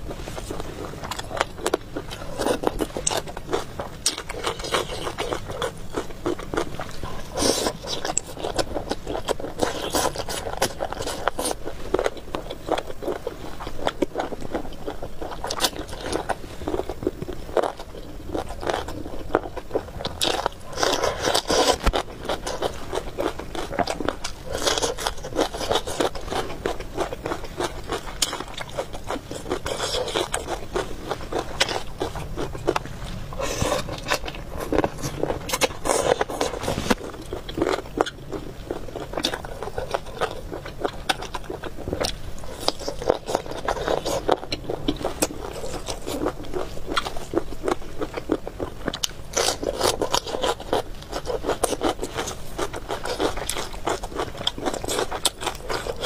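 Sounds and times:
chewing and crunching food: 0:00.0 - 0:56.0
scraping noises: 0:30.9 - 0:37.4.

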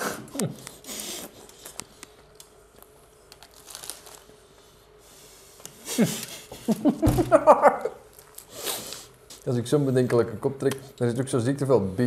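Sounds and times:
food packaging rustling: 0:02.6 - 0:04.4, 0:08.0 - 0:09.5.

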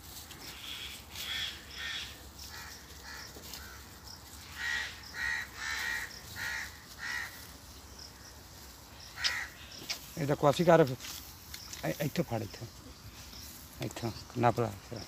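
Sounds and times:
crow cawing: 0:00.6 - 0:07.5, 0:09.0 - 0:09.8.

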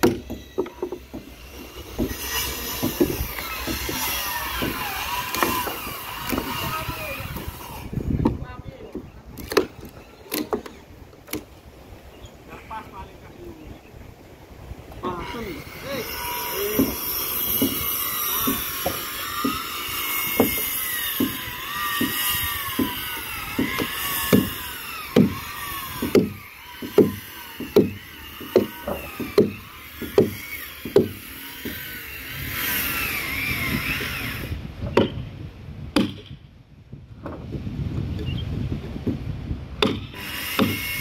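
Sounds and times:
hammer knocking on wood: 0:02.8 - 0:06.5, 0:16.8 - 0:17.8, 0:18.4 - 0:19.6, 0:20.3 - 0:23.0, 0:23.6 - 0:25.4, 0:26.0 - 0:31.8.

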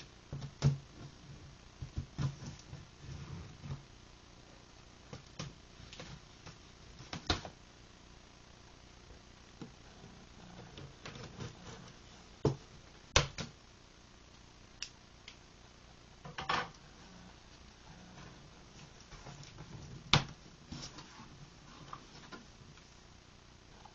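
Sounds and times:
scraping rustle: 0:17.9 - 0:22.9.

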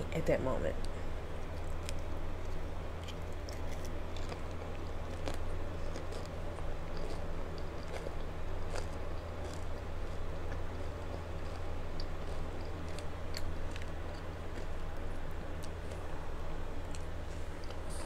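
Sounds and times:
steady low hum: 0:00.0 - 0:18.0
crunchy taco chewing: 0:01.1 - 0:18.0.

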